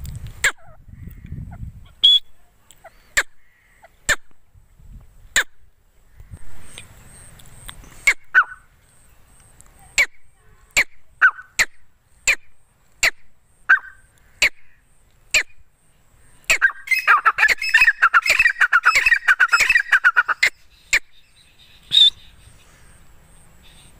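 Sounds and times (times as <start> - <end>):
bird calling sharp notes: 0.4 - 4.4, 8.0 - 8.7, 10.0 - 15.7, 16.4 - 23.0
bird chattering: 10.0 - 15.6, 16.4 - 22.8.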